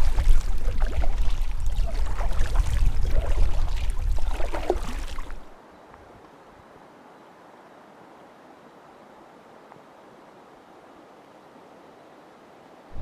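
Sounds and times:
water splashing and gurgling: 0.0 - 5.6
faint steady hiss: 5.1 - 13.0.

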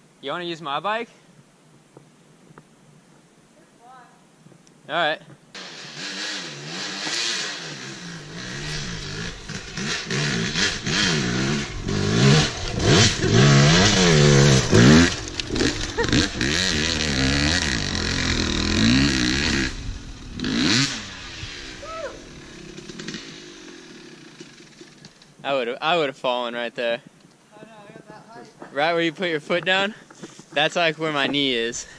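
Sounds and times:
dirt bike engine revving: 5.6 - 25.0.

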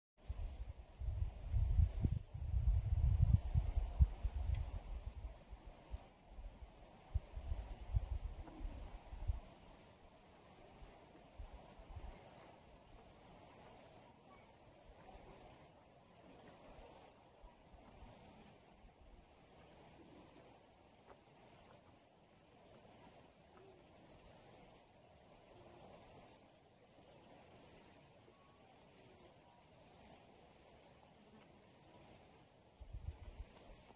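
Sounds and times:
wind buffeting microphone: 0.4 - 5.3.

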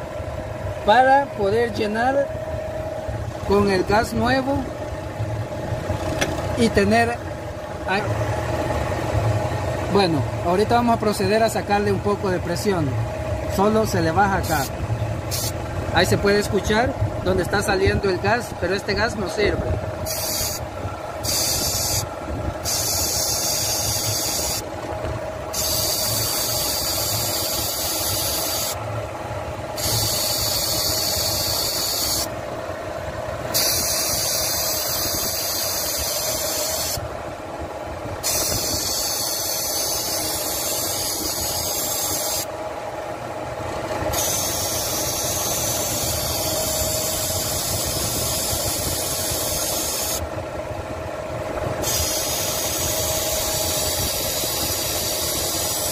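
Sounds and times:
car engine running: 0.0 - 55.9
refrigerant hissing from valve: 15.3 - 15.6, 20.0 - 20.6, 21.2 - 24.6, 25.5 - 28.8, 29.8 - 32.3, 33.5 - 37.0, 38.2 - 42.5, 44.1 - 50.2, 51.8 - 55.9.

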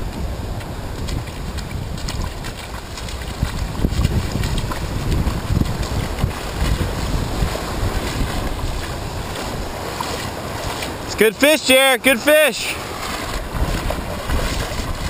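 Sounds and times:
wind buffeting microphone: 0.0 - 11.1, 12.8 - 15.0
small surf waves breaking: 0.0 - 15.0.

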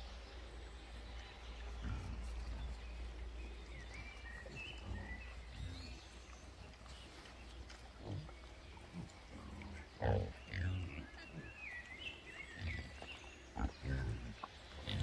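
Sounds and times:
bird chirping: 0.0 - 15.0
pigs grunting: 1.8 - 2.8, 8.0 - 11.6, 12.4 - 15.0.

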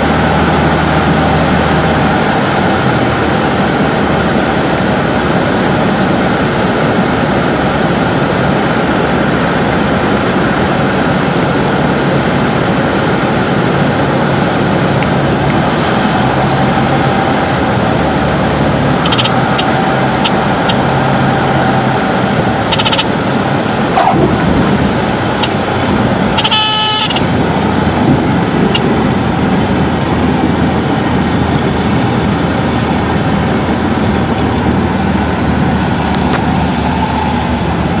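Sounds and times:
aircraft engine and propeller: 0.0 - 38.0
wind noise: 0.0 - 38.0
short pitched tone: 22.6 - 23.1, 26.4 - 27.4.

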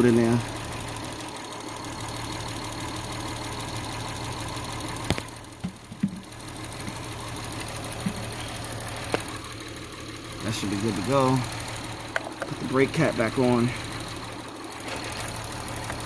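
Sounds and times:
car engine idling: 0.0 - 16.0
sharp clicks and knocks: 5.0 - 7.0, 8.0 - 8.4, 9.0 - 9.3, 12.1 - 12.8.

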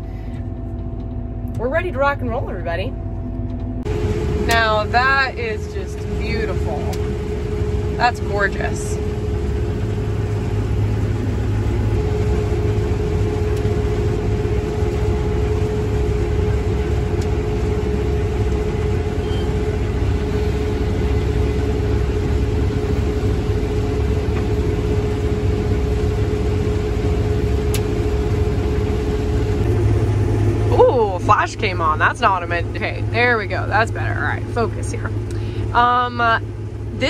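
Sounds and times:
combine harvester engine drone: 0.0 - 37.0
constant machine whine: 0.0 - 37.0.

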